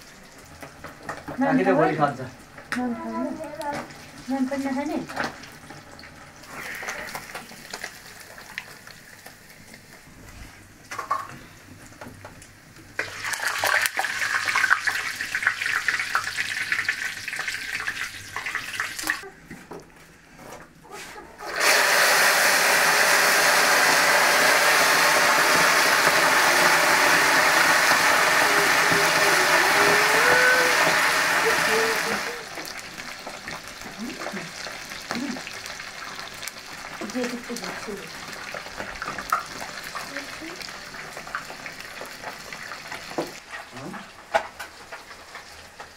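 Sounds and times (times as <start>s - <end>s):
fish crackling in hot oil: 3.6s - 10.1s, 12.0s - 19.2s, 22.9s - 45.9s
loud steady hiss: 21.6s - 32.5s.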